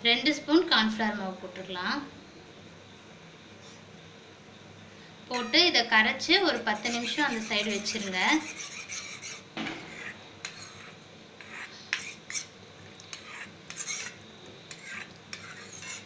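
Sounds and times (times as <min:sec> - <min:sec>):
metal spoon scraping a steel bowl: 0:05.3 - 0:05.6, 0:06.5 - 0:12.5, 0:13.1 - 0:16.0.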